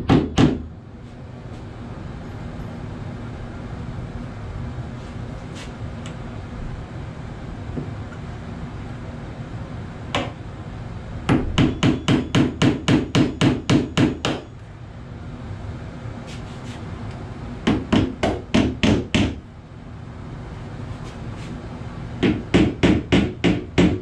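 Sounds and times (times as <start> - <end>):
hammer striking metal hinge: 11.3 - 14.4.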